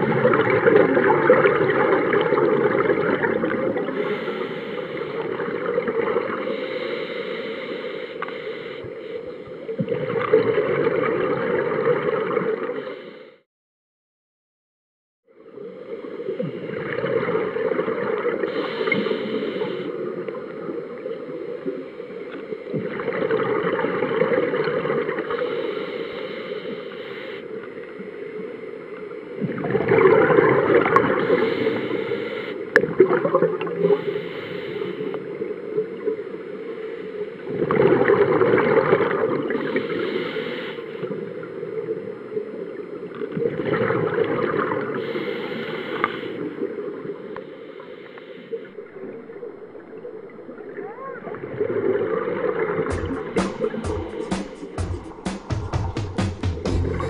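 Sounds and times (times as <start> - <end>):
low underwater rush: 0.0 - 13.4, 15.3 - 57.0
scuba regulator bubbling exhale: 0.0 - 13.4, 16.0 - 21.0, 22.7 - 27.9, 29.4 - 36.1, 36.8 - 42.2, 43.2 - 50.7.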